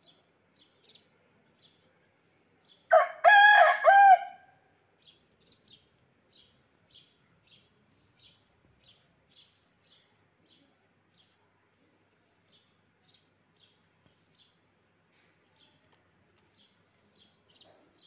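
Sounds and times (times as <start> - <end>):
rooster crowing: 2.9 - 4.5
small bird chirping: 5.0 - 11.6.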